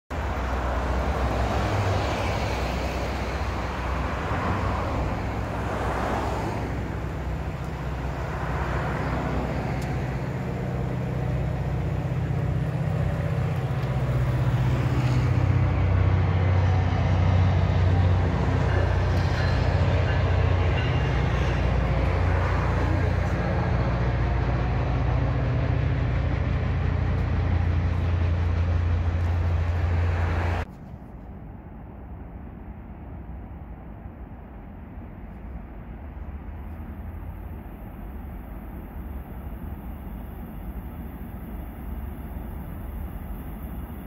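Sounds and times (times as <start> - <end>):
diesel train engine drone: 0.1 - 44.0
cars swishing past: 0.2 - 30.8.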